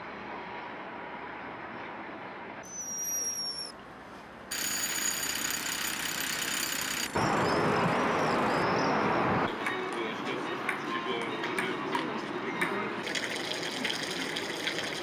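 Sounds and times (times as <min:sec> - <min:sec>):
traffic and train hum: 0:00.0 - 0:04.7, 0:06.4 - 0:15.0
railway noise: 0:00.0 - 0:15.0
high squeal: 0:02.6 - 0:03.8, 0:07.2 - 0:09.5
jackhammer breaking paving: 0:04.5 - 0:07.5.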